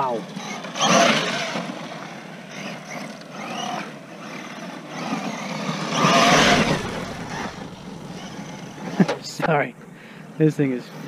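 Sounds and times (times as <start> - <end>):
tyres on loose dirt: 0.0 - 11.0
electric motor whining: 0.3 - 9.1.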